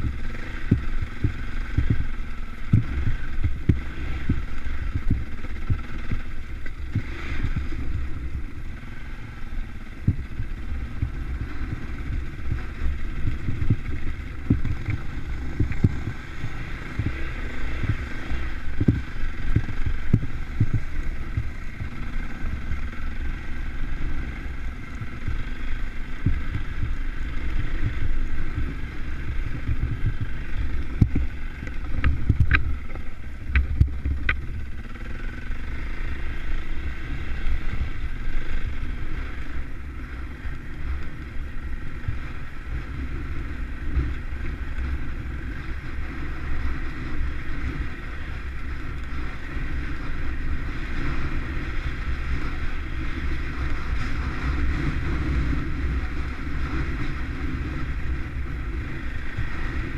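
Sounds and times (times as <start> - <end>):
wind buffeting microphone: 0.0 - 35.0
trail bike engine running: 0.0 - 59.9.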